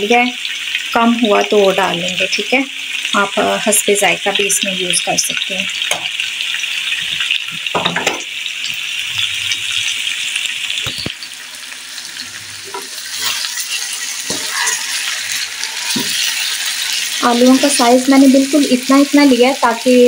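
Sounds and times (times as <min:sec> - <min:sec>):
potatoes sizzling in oil: 0:00.0 - 0:20.0
wooden spatula scraping pan: 0:12.6 - 0:17.2.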